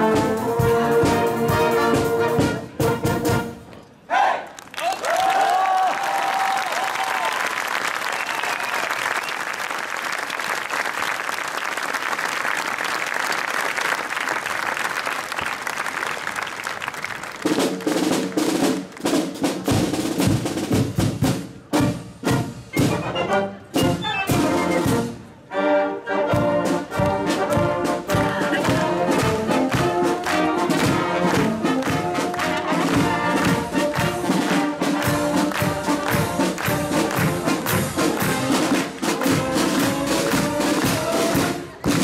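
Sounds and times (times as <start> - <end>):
drum beats: 0.0 - 3.5, 17.4 - 25.2, 26.3 - 42.0
marching brass band: 0.0 - 4.5, 15.3 - 42.0.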